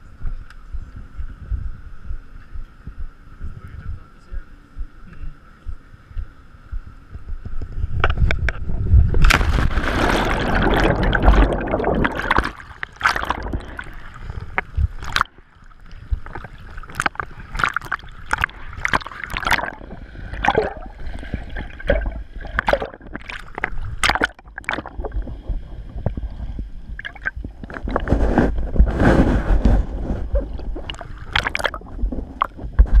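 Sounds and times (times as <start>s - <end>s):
water splashing against camera: 7.2s - 33.0s
churning water surge: 8.9s - 32.7s.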